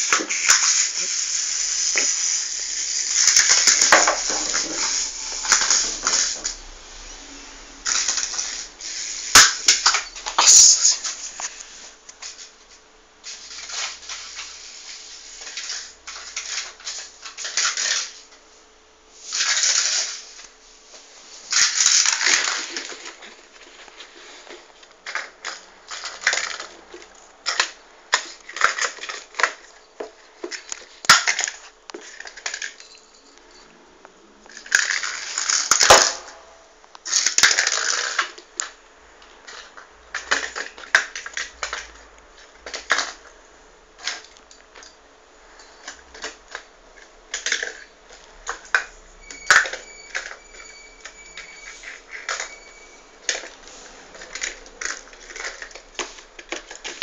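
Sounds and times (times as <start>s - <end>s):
cat batting and scratching a tube: 0.0s - 6.6s.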